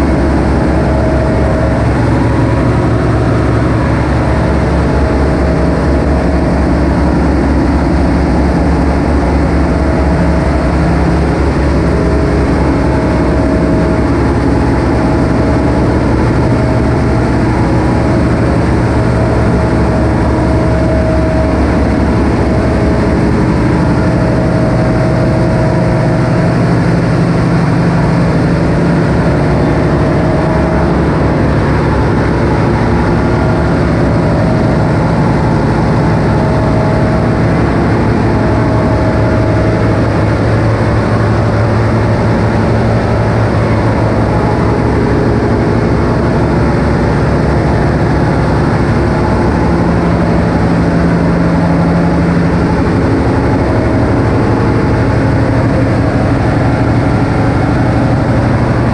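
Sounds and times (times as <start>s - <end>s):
engine room machinery din: 0.0s - 58.9s.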